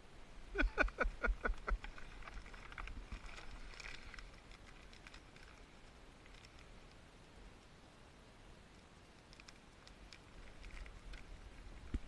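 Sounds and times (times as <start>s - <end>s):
man laughing: 0.5s - 1.8s
faint clicks: 8.7s - 12.0s.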